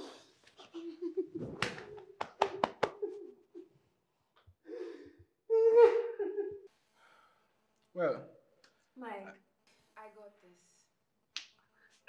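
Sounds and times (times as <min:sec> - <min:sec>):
person sobbing and wailing: 0:05.5 - 0:06.6.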